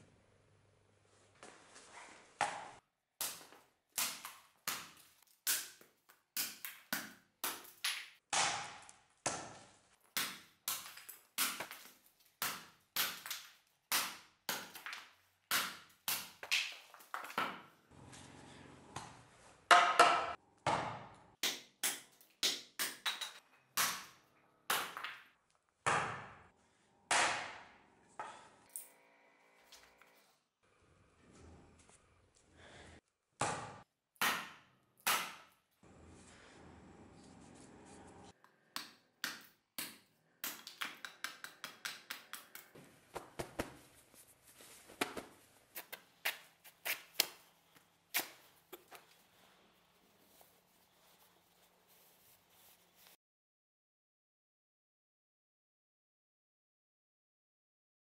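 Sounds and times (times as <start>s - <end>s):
hand axe chopping wood: 10.2s - 17.6s, 33.4s - 35.6s.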